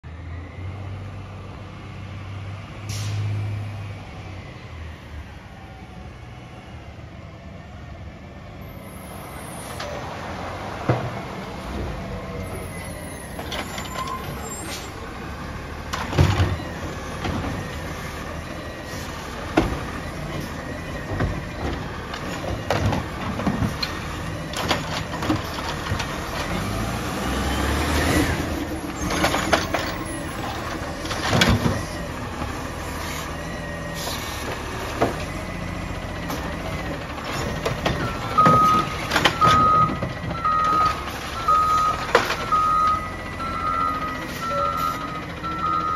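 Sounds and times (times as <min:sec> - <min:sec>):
garbage truck diesel engine: 0:00.0 - 0:45.9
air brake hisses: 0:02.9 - 0:03.4
warning beeps: 0:38.0 - 0:45.9.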